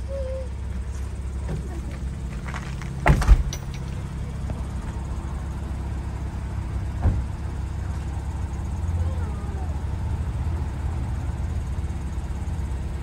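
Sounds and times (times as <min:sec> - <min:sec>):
car engine idling: 0:00.0 - 0:13.0
car door slamming: 0:02.9 - 0:03.8, 0:07.0 - 0:07.4.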